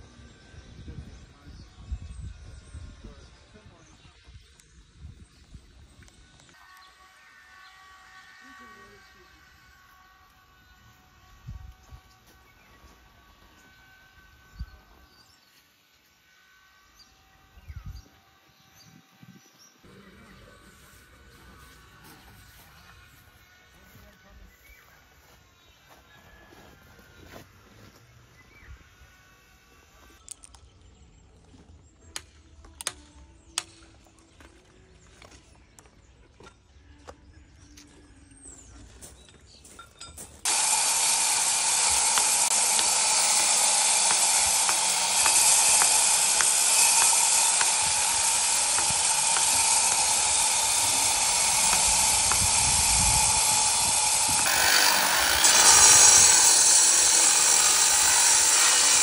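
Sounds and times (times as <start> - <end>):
angle grinder cutting stone: 6.4 - 15.6, 40.4 - 59.0.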